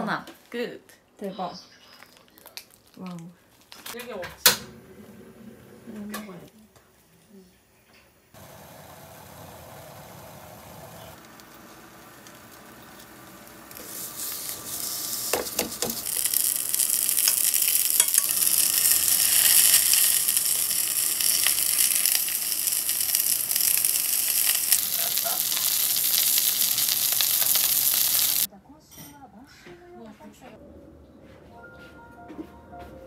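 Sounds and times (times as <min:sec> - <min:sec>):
food sizzling in a pan: 0:11.1 - 0:28.5.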